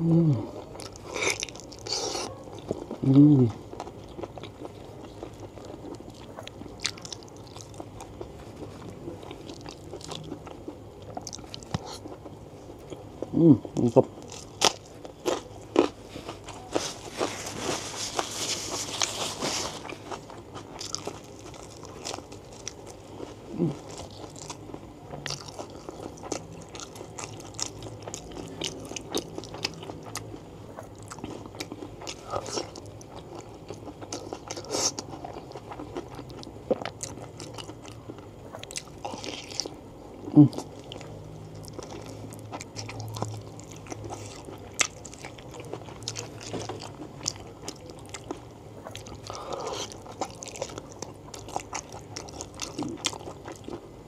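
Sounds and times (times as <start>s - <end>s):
low throat sound: 0.0s - 0.6s, 3.0s - 3.6s, 13.3s - 14.0s, 23.5s - 23.9s
person chewing and crunching food: 0.0s - 54.0s.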